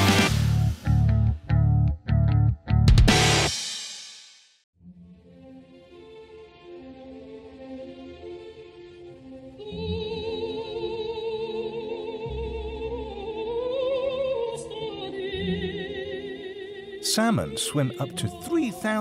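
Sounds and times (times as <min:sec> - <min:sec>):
voice singing with vibrato: 0:09.6 - 0:19.0
sustained musical backing: 0:16.1 - 0:19.0.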